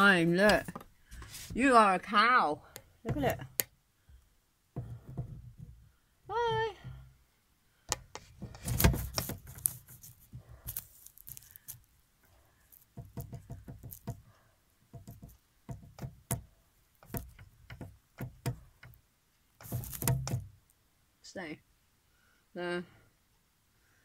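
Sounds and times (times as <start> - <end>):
handling clicks taps and rustling: 0.0 - 1.7, 2.7 - 3.7, 7.9 - 11.9, 12.7 - 19.0, 19.6 - 20.6.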